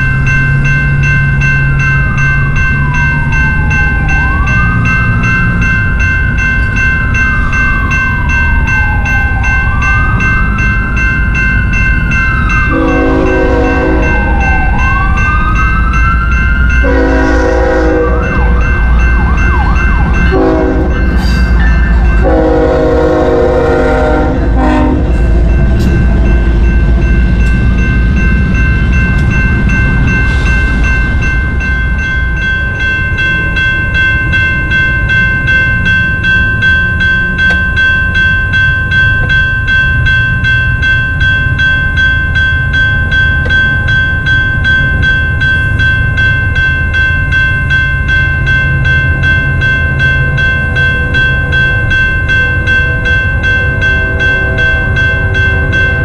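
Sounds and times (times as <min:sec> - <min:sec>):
crossing bell ringing: 0:00.0 - 0:56.0
train rumbling: 0:00.0 - 0:56.0
locomotive air horn blasts: 0:12.7 - 0:14.2, 0:16.8 - 0:18.6, 0:20.3 - 0:21.0, 0:22.2 - 0:25.2.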